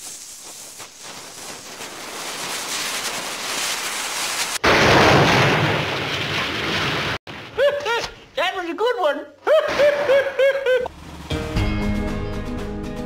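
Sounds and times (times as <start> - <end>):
lit fuse hissing: 0.0 - 4.6
loud explosion: 4.5 - 7.7.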